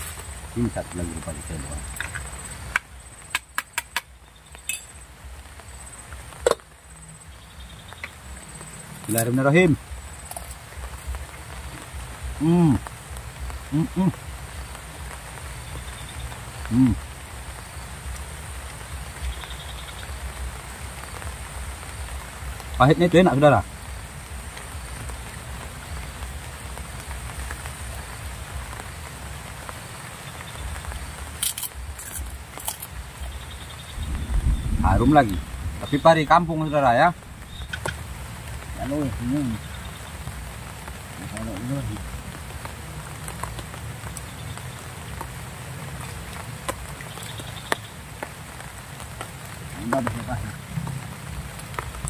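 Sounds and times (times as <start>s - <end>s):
rain patter: 0.0s - 52.0s
low uneven rumble: 31.8s - 42.8s.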